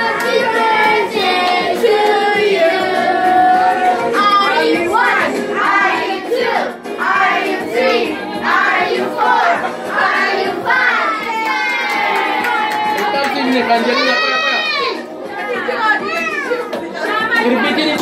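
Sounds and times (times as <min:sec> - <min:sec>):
children singing together: 0:00.0 - 0:11.2.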